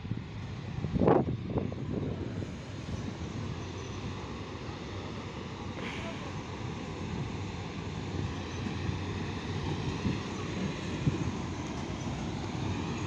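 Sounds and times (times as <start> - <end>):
wind buffeting microphone: 0.0 - 3.6, 6.4 - 13.0
train rumbling slowly: 0.0 - 13.0.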